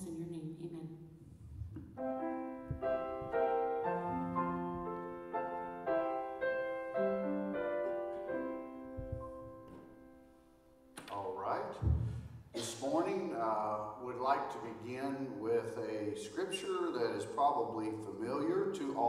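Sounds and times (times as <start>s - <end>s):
piano playing slow chords: 1.9s - 11.0s.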